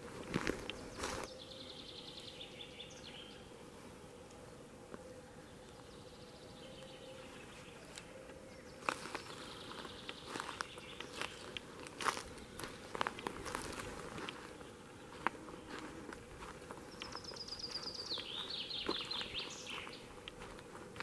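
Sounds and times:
footsteps crunching on forest floor: 0:00.0 - 0:01.4, 0:07.2 - 0:21.0
songbird trill: 0:00.0 - 0:21.0.

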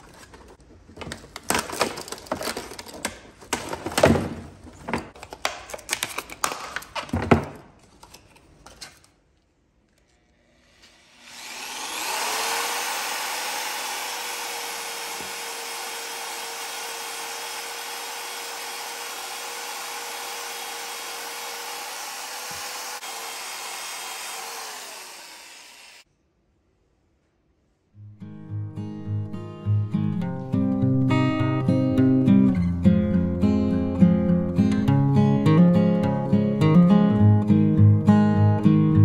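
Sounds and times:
electric drill motor whine: 0:10.8 - 0:26.0.

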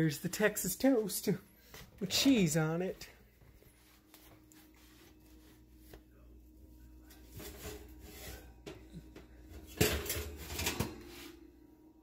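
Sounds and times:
rubbing and rustling: 0:03.3 - 0:06.2
metal pan clatter: 0:09.7 - 0:10.9.

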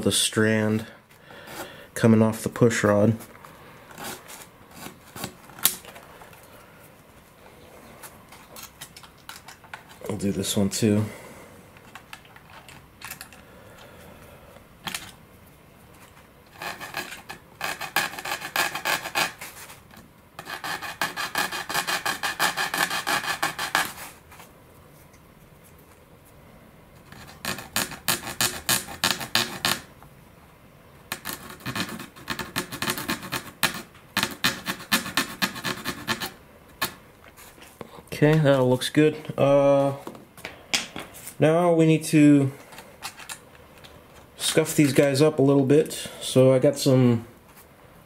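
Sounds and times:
hand file rasping: 0:16.6 - 0:19.4, 0:20.4 - 0:24.1, 0:31.1 - 0:37.0.

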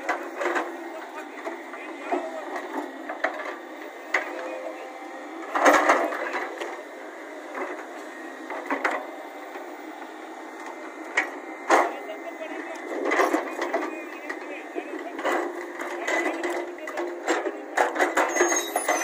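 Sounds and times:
diesel engine running: 0:00.0 - 0:19.0
excavator bucket clanking: 0:16.9 - 0:19.0.

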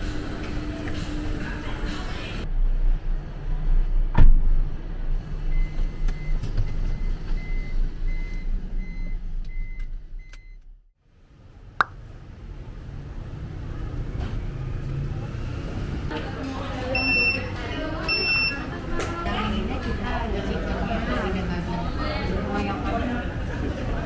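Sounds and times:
thump: 0:04.1 - 0:04.7
faint high warning beeps: 0:16.9 - 0:18.6.

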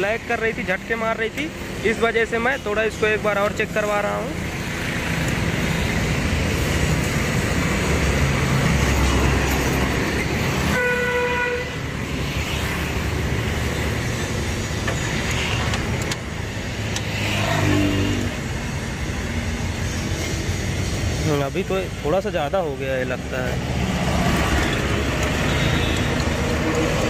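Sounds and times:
street traffic rumble: 0:00.0 - 0:27.0
vehicle horn: 0:10.7 - 0:11.8.

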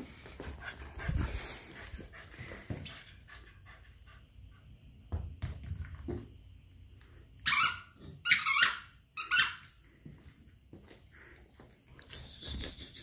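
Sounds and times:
dog panting: 0:00.0 - 0:04.8.

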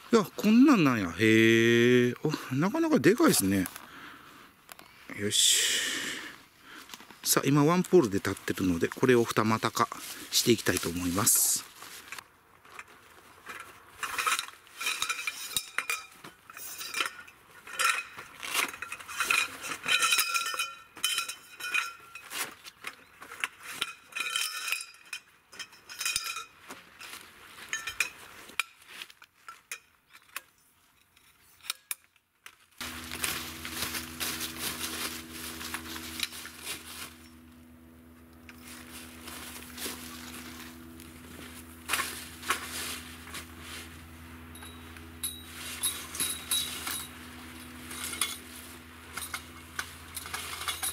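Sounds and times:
low hum with hiss: 0:00.0 - 0:22.3, 0:32.8 - 0:50.9
metal tent poles clinking: 0:07.2 - 0:50.9.

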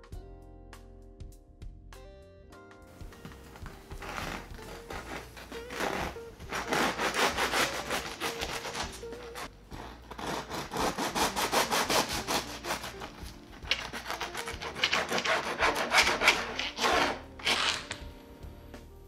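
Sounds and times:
bread knife sawing crusty loaf: 0:03.6 - 0:18.0.

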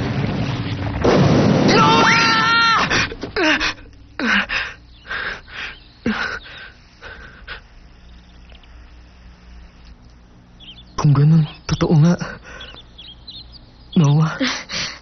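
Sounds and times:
faint steady hum: 0:00.0 - 0:15.0
boy panting with groans: 0:02.8 - 0:07.8, 0:14.4 - 0:15.0.

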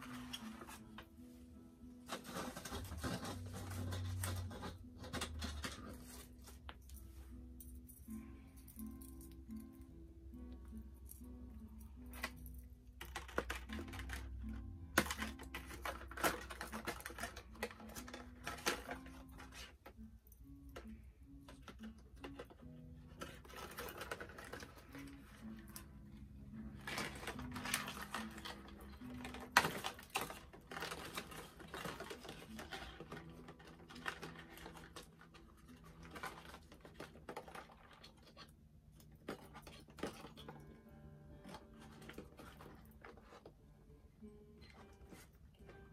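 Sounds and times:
quiet background music: 0:00.0 - 0:45.9
cardboard packaging rustling: 0:01.9 - 0:07.3, 0:12.0 - 0:19.9, 0:21.5 - 0:25.8, 0:26.6 - 0:38.5, 0:41.4 - 0:43.5.

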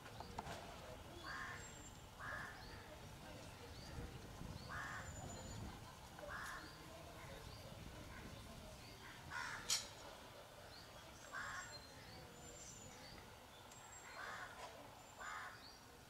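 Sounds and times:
crows cawing: 0:02.2 - 0:02.6, 0:04.7 - 0:05.1, 0:06.3 - 0:06.7, 0:09.1 - 0:09.8, 0:11.3 - 0:11.7, 0:14.1 - 0:14.6, 0:15.2 - 0:15.6.

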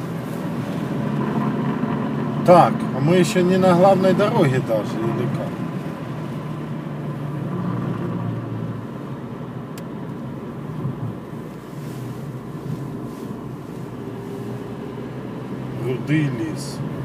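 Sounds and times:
engine and tyre rumble: 0:00.0 - 0:17.0
light tick: 0:09.7 - 0:10.2.

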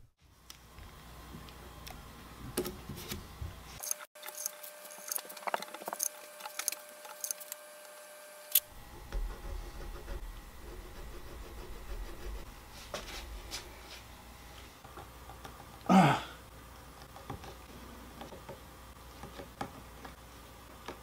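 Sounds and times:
hands and tools clicking and tapping: 0:19.2 - 0:21.0.

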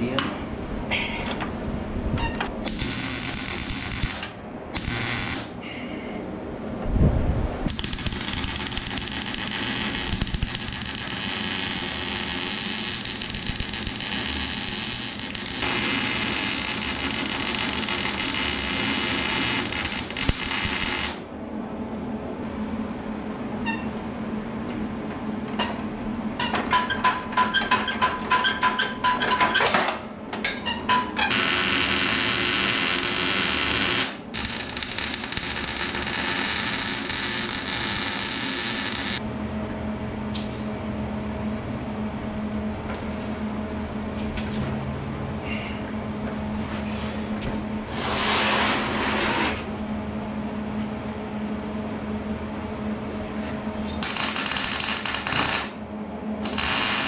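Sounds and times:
welder arc buzzing: 0:02.6 - 0:05.6, 0:07.7 - 0:21.3, 0:31.3 - 0:39.2, 0:54.0 - 0:55.8, 0:56.4 - 0:57.0.

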